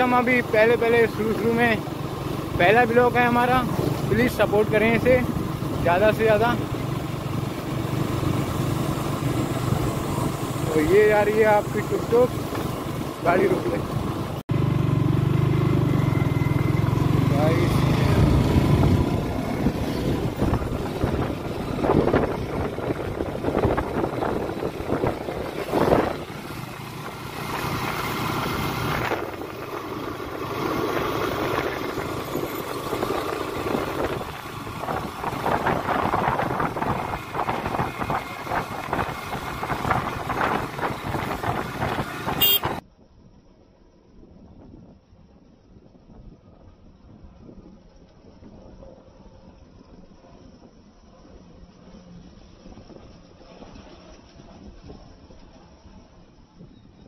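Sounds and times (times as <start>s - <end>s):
motorcycle engine running: 0.0s - 42.8s
wind and road noise: 0.0s - 57.0s.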